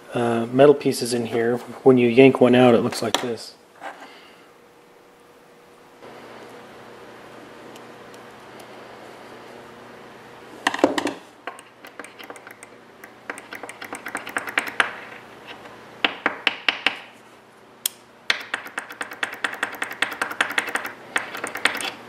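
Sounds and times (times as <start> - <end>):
small metal parts clicking: 11.5 - 14.9, 18.3 - 22.0.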